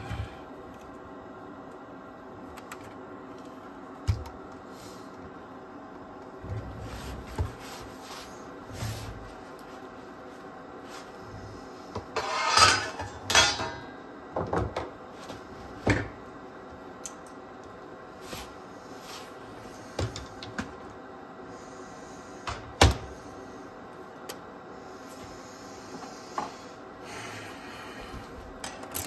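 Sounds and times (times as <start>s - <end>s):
small parts clicking and rattling: 28.6s - 29.0s.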